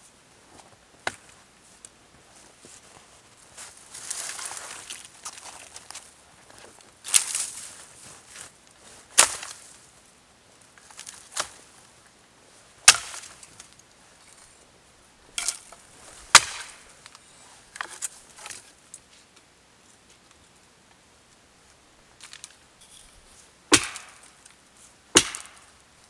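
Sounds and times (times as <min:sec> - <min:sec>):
hatchet chopping branches: 0:09.2 - 0:09.5, 0:12.8 - 0:13.4, 0:15.4 - 0:16.9, 0:23.7 - 0:24.4, 0:25.1 - 0:25.7.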